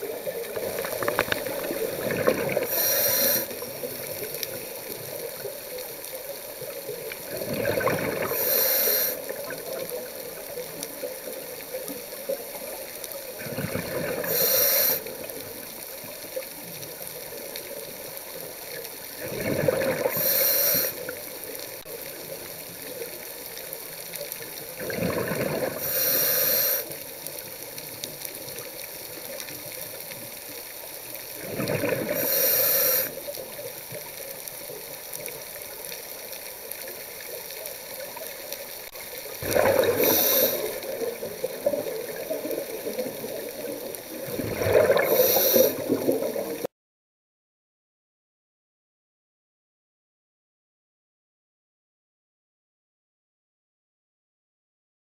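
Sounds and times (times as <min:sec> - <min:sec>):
diver exhaling bubbles: 0:00.0 - 0:04.6, 0:07.2 - 0:09.6, 0:13.4 - 0:15.0, 0:19.2 - 0:21.2, 0:24.8 - 0:26.8, 0:31.4 - 0:33.2, 0:39.4 - 0:46.7
regulator inhale hiss: 0:02.4 - 0:04.8, 0:08.2 - 0:09.5, 0:14.1 - 0:15.4, 0:20.0 - 0:21.6, 0:25.8 - 0:27.5, 0:32.0 - 0:33.4, 0:39.8 - 0:43.0, 0:44.8 - 0:46.2.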